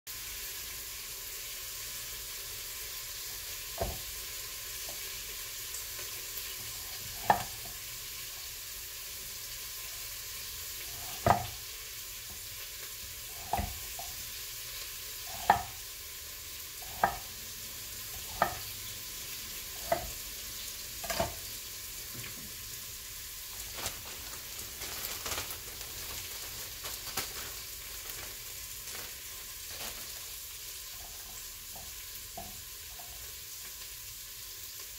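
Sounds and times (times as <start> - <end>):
steam hissing from pressure cooker: 0.1 - 23.5
knife chopping on wooden board: 7.1 - 7.6, 11.0 - 11.6, 13.4 - 13.8, 15.3 - 15.8, 16.8 - 17.3, 18.2 - 18.7, 19.8 - 20.2, 21.0 - 21.4
plastic bag handling: 23.4 - 30.7.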